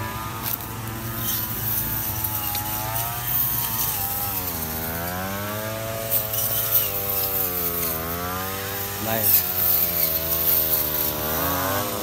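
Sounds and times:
brush cutter engine pitch sagging: 0:00.0 - 0:12.0
brush cutters humming: 0:00.0 - 0:12.0.

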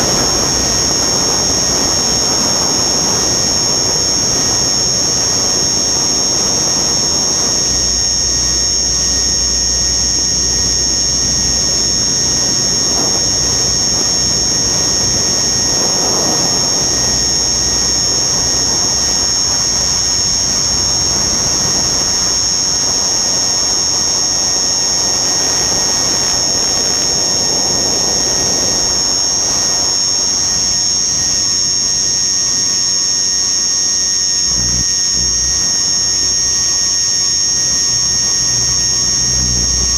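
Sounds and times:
wind rushing over airframe: 0:00.0 - 0:05.3, 0:12.9 - 0:22.9
model aircraft motor whining: 0:00.0 - 0:39.9.

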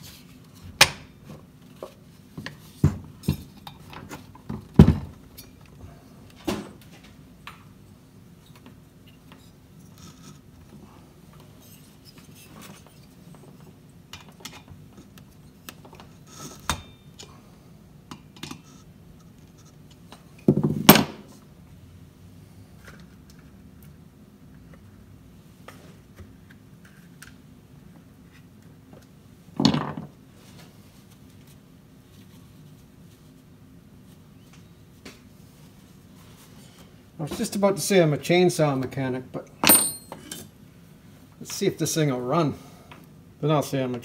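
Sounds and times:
metal parts clinking and knocking: 0:39.6 - 0:40.5.

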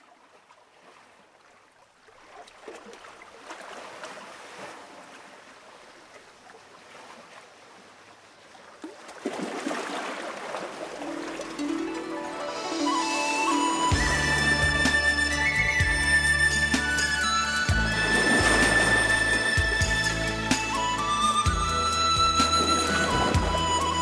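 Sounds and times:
music: 0:11.1 - 0:24.0
rushing water-like noise: 0:16.7 - 0:24.0.

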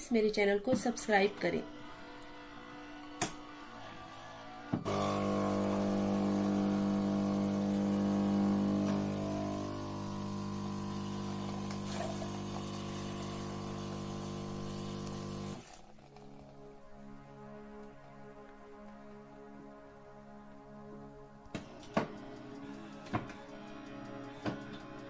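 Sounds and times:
water pump buzzing hum: 0:04.8 - 0:15.8.

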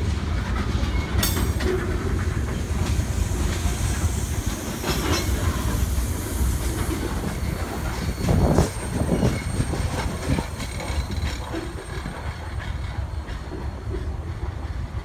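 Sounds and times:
train wheels clacking on rails: 0:00.0 - 0:15.0
faint wheel squeal: 0:07.2 - 0:12.1.

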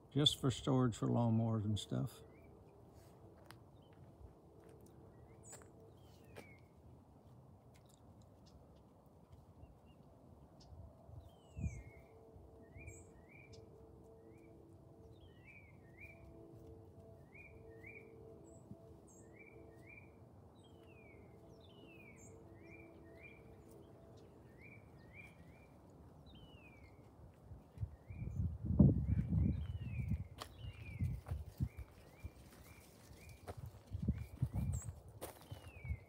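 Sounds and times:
bird chirping: 0:09.6 - 0:16.5, 0:17.1 - 0:27.1.

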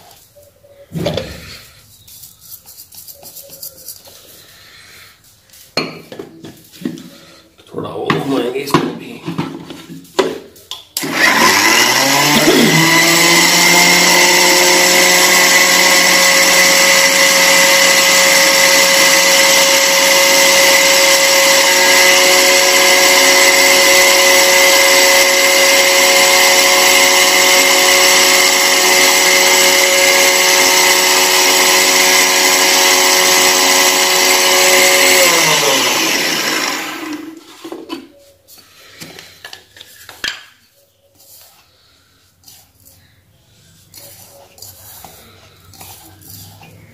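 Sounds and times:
mixer grinder whining: 0:11.0 - 0:39.9, 0:41.2 - 0:46.9.

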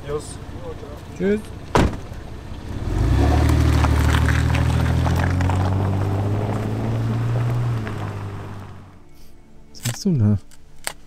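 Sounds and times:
car engine driving off: 0:00.0 - 0:09.0
tyres crackling on dirt track: 0:00.2 - 0:09.0.

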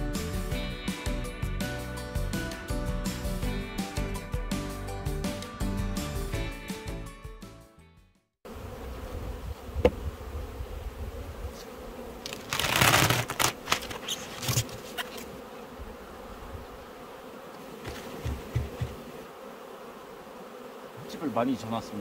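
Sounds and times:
bees humming: 0:08.5 - 0:22.0
hive cover scraping rustle: 0:08.6 - 0:22.0.

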